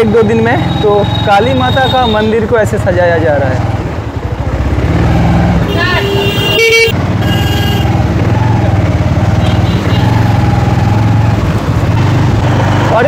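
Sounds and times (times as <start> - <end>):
motorcycle engine running: 0.0 - 13.0
vehicle horn tooting: 5.7 - 8.0, 9.4 - 10.2.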